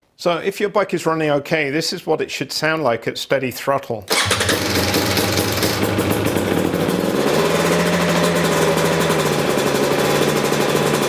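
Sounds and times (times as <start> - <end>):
two-stroke engine running: 4.1 - 11.0.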